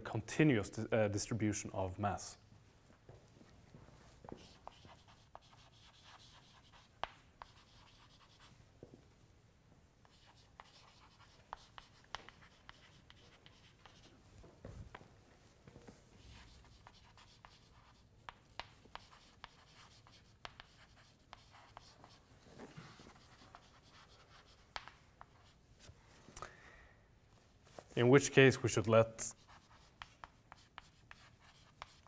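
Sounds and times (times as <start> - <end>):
chalk scratching on blackboard: 4.3 - 8.5, 10.0 - 14.1, 16.2 - 22.3, 22.9 - 25.6, 29.3 - 32.0
chalk tapping on board: 4.3 - 8.5, 10.0 - 14.1, 16.3 - 22.2, 23.1 - 25.5, 29.3 - 32.0.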